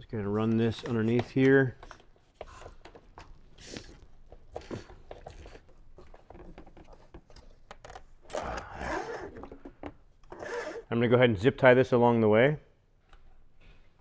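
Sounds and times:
wire handling clicks and rustles: 0.3s - 10.6s.

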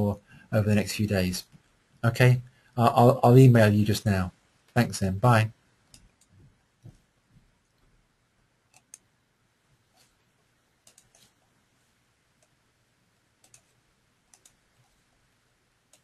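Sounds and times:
faint computer mouse clicks: 8.7s - 9.1s, 10.8s - 11.4s, 13.4s - 15.0s.

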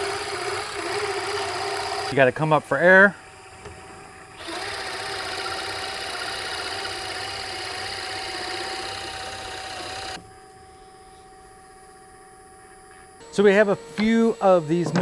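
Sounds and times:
drill press boring into wood: 0.0s - 2.2s, 4.3s - 10.2s, 13.3s - 15.0s.

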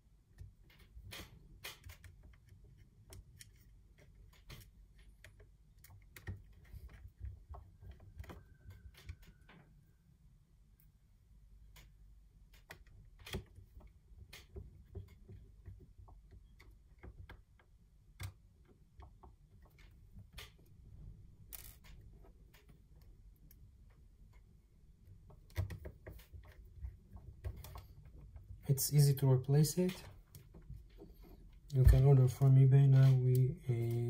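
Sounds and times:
small tools on wooden table: 0.0s - 34.0s
plastic parts clicking together: 0.3s - 9.6s.

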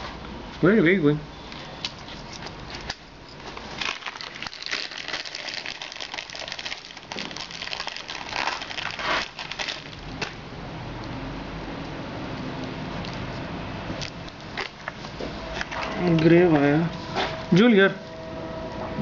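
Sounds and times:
wiring harness crinkling: 1.8s - 10.2s.

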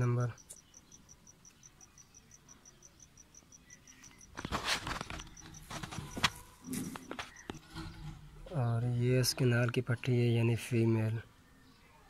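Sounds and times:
cricket chirping: 0.0s - 8.1s
rustling handling noise: 4.2s - 9.8s.

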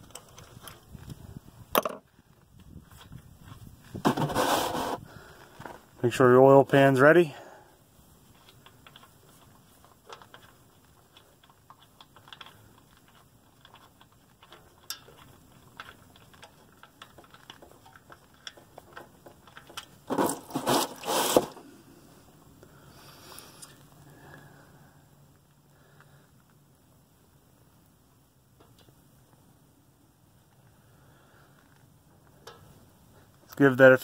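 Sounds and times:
rustling bursts: 20.1s - 21.6s.

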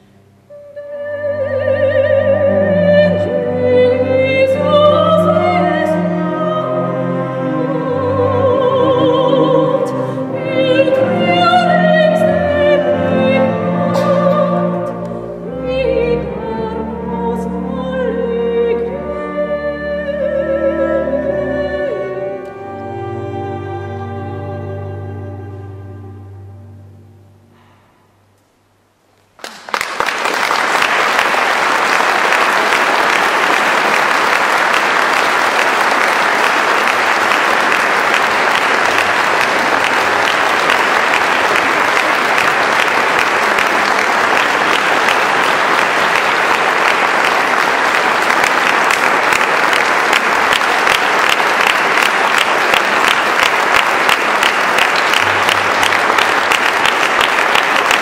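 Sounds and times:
audience applause: 29.4s - 58.0s.

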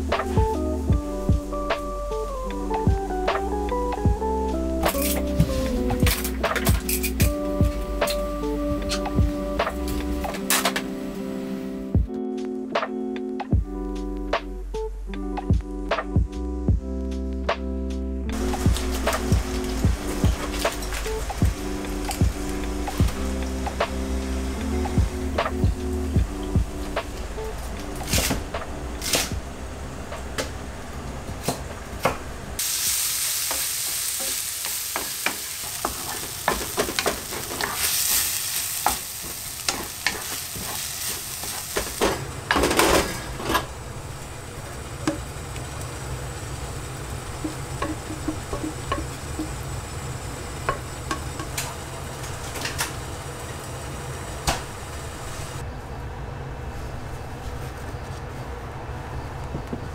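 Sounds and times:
steady low hum: 13.6s - 32.6s
food sizzling in a frying pan: 18.3s - 25.4s, 32.6s - 55.6s.

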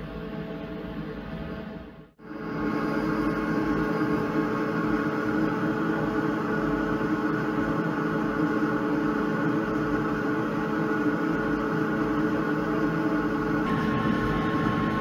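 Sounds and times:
laser engraver humming: 2.3s - 15.0s
whining drive tones: 13.7s - 15.0s.

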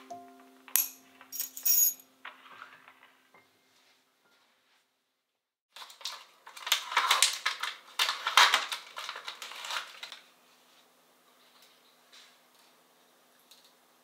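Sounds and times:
plastic packaging crinkling: 5.7s - 10.4s.

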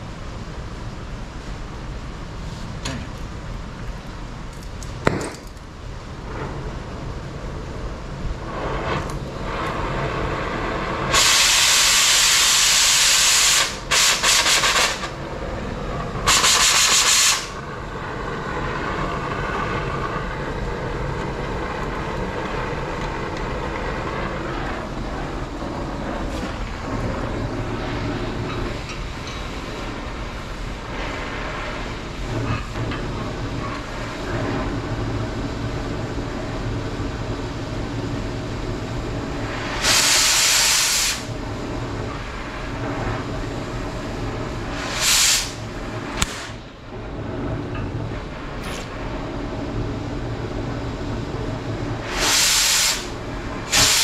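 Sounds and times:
loud hissing bursts: 6.2s - 35.2s, 39.1s - 41.4s, 42.2s - 46.8s, 52.0s - 54.0s.

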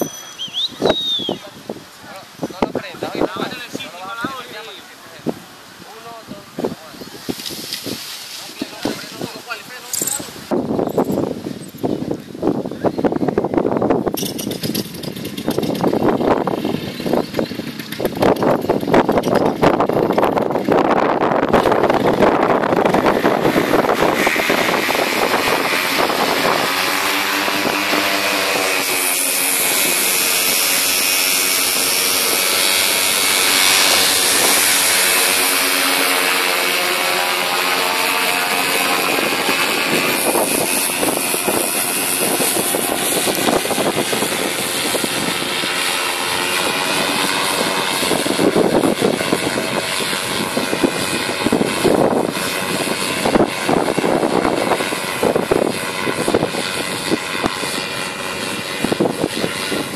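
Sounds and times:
paramotor engine and propeller: 0.0s - 59.9s
wind buffeting microphone: 0.0s - 59.9s.

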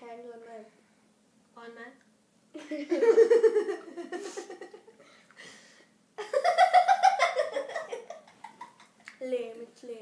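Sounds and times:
child giggling: 2.6s - 5.0s, 6.2s - 9.1s.

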